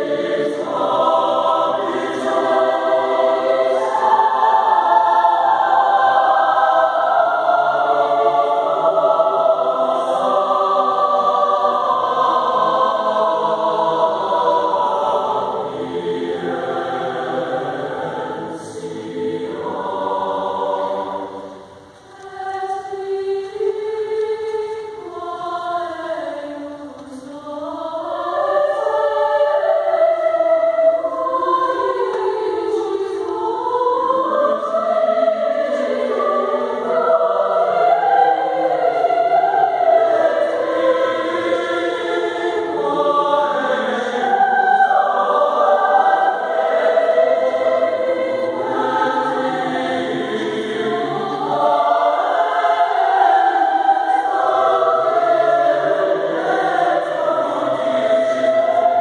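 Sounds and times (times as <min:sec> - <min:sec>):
mixed choir singing in parts: 0:00.0 - 0:59.0.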